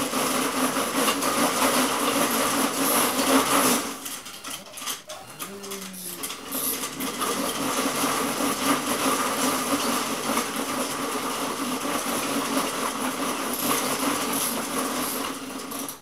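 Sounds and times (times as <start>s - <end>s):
treadmill slats rattling: 6.2s - 16.0s.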